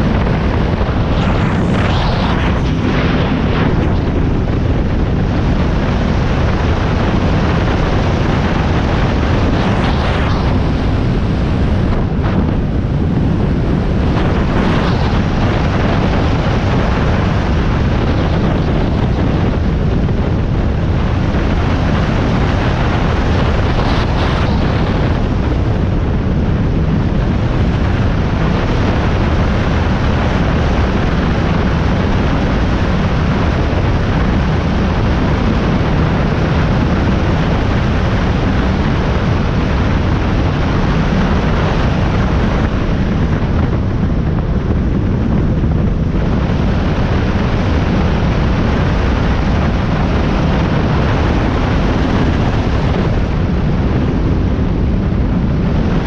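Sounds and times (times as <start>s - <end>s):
powerboat engine and water rush: 0.0s - 56.0s.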